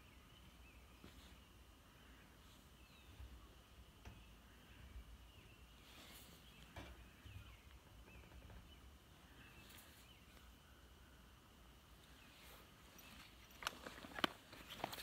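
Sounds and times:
distant bird chirps: 0:00.0 - 0:15.0
soft rustles: 0:00.9 - 0:03.2, 0:12.0 - 0:15.0.

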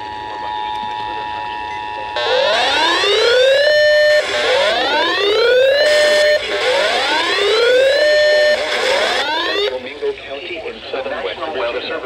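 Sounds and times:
electronic alert siren wailing: 0:02.2 - 0:09.7.

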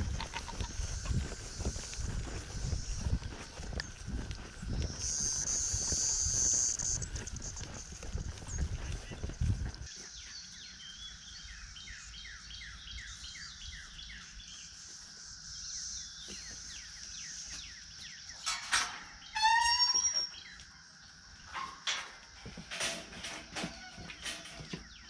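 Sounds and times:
small birds chirping: 0:00.0 - 0:21.6, 0:23.6 - 0:25.0.

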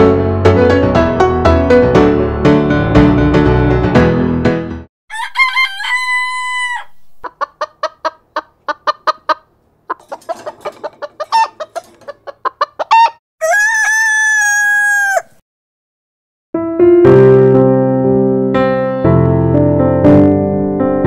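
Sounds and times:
rooster crowing: 0:05.1 - 0:07.2, 0:12.9 - 0:15.4
chickens clucking: 0:05.2 - 0:14.6.

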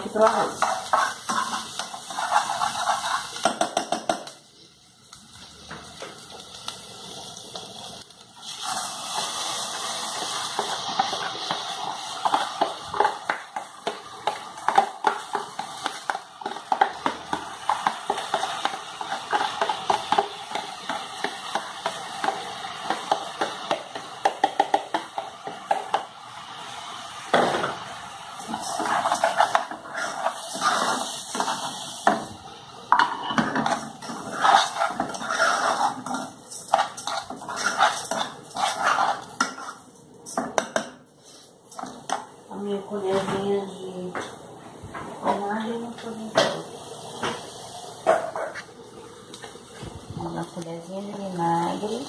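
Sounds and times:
rice sizzling in hot oil: 0:00.0 - 0:42.8, 0:45.5 - 0:52.0
spoon scraping a pan: 0:00.2 - 0:04.3, 0:08.4 - 0:26.1, 0:28.4 - 0:32.3, 0:32.9 - 0:42.3.

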